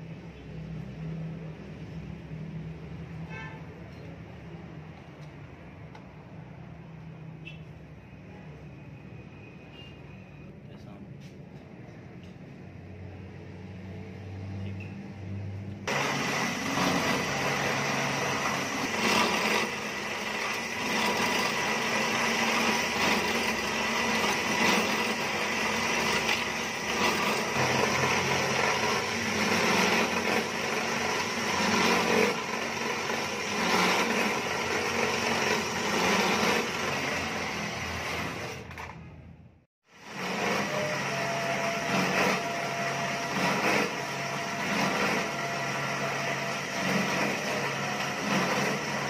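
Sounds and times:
drill bit cutting metal: 15.9s - 38.7s, 39.9s - 49.0s
drill press motor whine: 15.9s - 39.0s, 39.9s - 49.0s.

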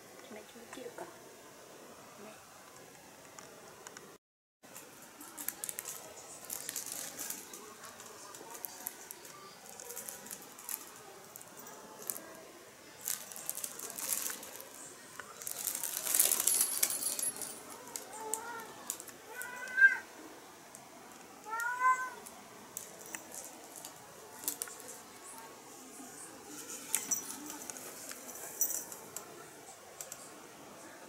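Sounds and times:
fabric rustling and crinkling: 4.7s - 19.1s
cat meowing: 19.3s - 20.1s, 21.4s - 22.2s.

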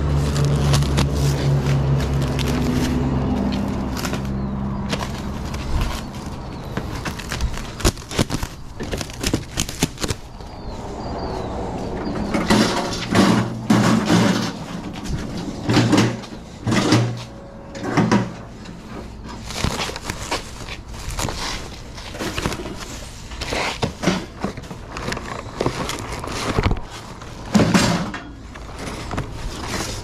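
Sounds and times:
hand truck rattling over concrete: 0.0s - 10.3s, 11.4s - 30.0s
low engine hum: 0.0s - 22.0s
metal hand truck clanking: 12.0s - 19.4s.

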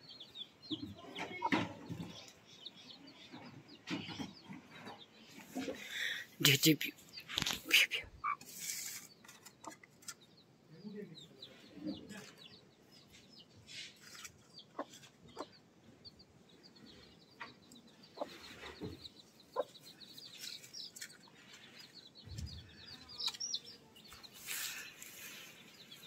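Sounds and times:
chicks peeping: 0.0s - 26.0s
hen clucking softly: 8.2s - 8.5s, 14.6s - 15.6s, 17.3s - 20.0s.

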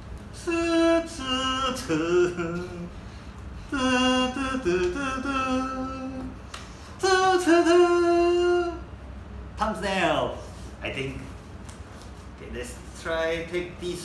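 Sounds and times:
man singing wordless tune: 0.3s - 3.0s, 3.6s - 6.4s, 7.0s - 8.9s.

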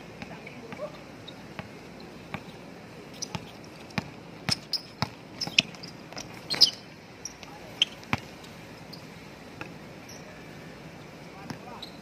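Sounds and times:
basketball bouncing on court: 3.2s - 6.7s, 7.8s - 8.3s.

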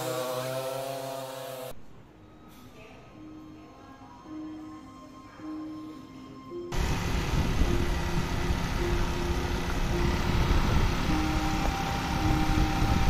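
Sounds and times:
simple background melody: 1.7s - 13.0s
motorbike engine running: 6.7s - 13.0s
wind rushing over microphone: 6.7s - 13.0s.

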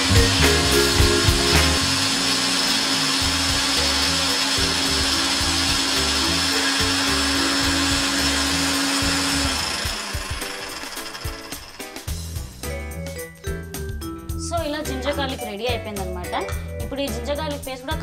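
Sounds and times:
mixer grinder whirring: 0.0s - 12.3s.

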